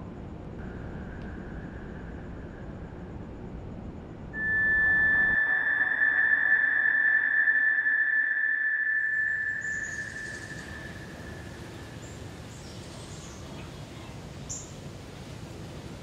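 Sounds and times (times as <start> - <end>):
high-pitched ringing tone: 0.6 - 3.6, 4.2 - 12.2.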